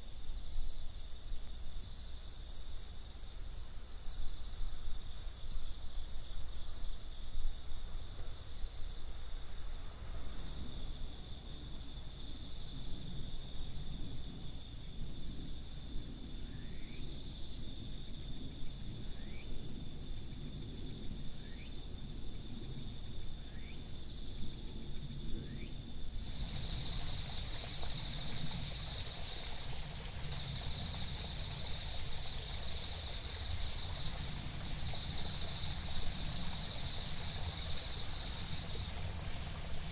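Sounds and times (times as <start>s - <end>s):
crickets trilling: 0.0s - 39.9s
pulsing insect song: 0.0s - 39.9s
soft wide hiss: 26.0s - 39.9s.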